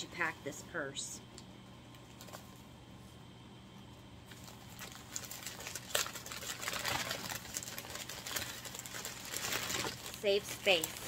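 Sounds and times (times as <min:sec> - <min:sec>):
wrapping paper crinkling: 0:04.3 - 0:11.0.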